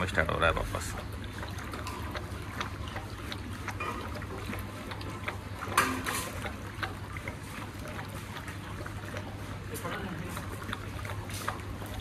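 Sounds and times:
dogs lapping from bowls: 0.0s - 12.0s.

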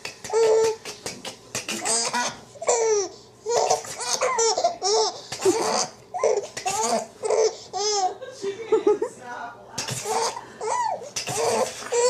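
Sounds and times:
baby laughing: 0.3s - 1.0s, 1.7s - 8.3s, 10.0s - 12.0s
baby gasping: 9.8s - 12.0s.

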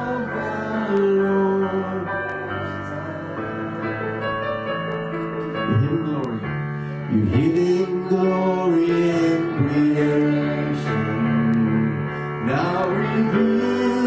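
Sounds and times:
man singing worship song: 0.0s - 3.8s, 5.7s - 14.0s
electric keyboard chords: 0.0s - 14.0s.

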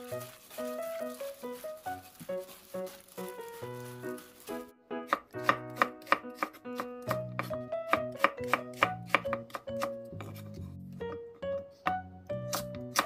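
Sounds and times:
knife chopping on cutting board: 5.1s - 10.6s.

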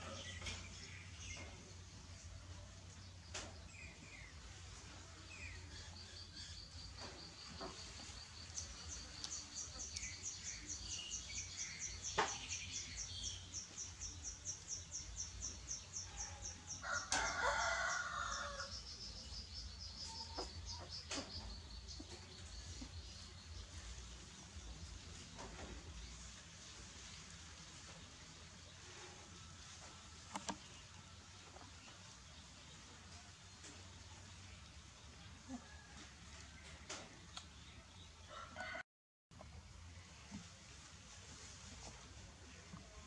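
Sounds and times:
rooster crowing: 16.8s - 18.8s, 38.3s - 38.8s.

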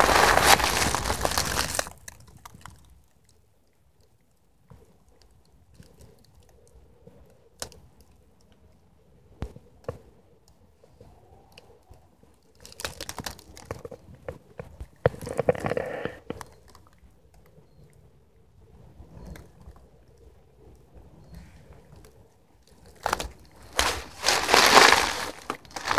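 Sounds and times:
dry leaves crunching: 0.0s - 2.0s, 23.0s - 25.9s.

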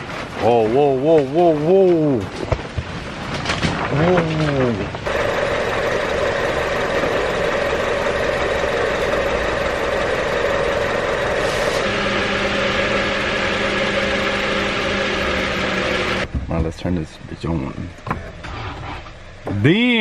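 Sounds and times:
car engine idling: 4.1s - 18.4s.

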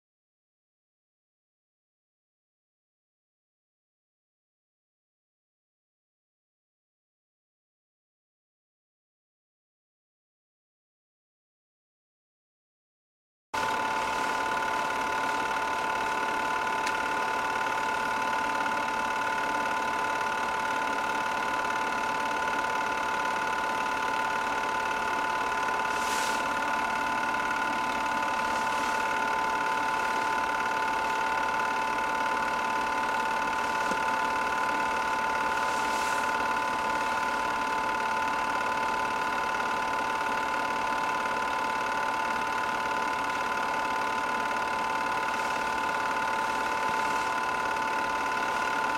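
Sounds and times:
film projector running: 13.6s - 48.9s.

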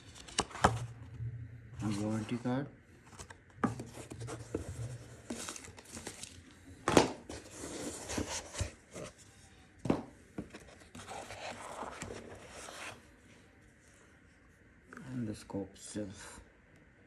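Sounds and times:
cardboard box rustling and scraping: 1.8s - 2.6s, 3.2s - 6.3s, 7.3s - 9.2s.

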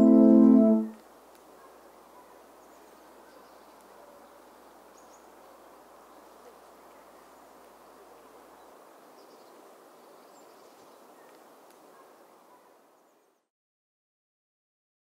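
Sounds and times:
steady low hiss: 0.0s - 1.6s.

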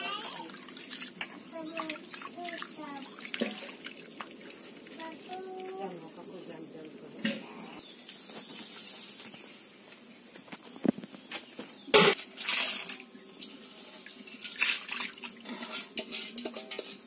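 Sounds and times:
water splashing: 0.4s - 4.5s, 12.0s - 13.0s, 14.4s - 15.4s
metal pots knocking: 15.5s - 17.0s.

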